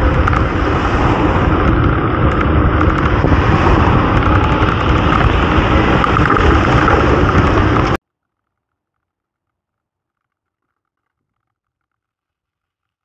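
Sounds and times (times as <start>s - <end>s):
road traffic rumble: 0.0s - 8.0s
wind buffeting microphone: 0.0s - 8.0s.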